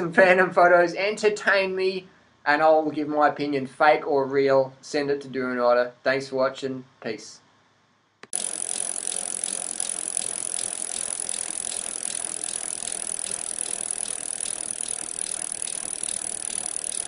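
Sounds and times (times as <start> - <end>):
fast mechanical clicking: 8.2 - 17.0.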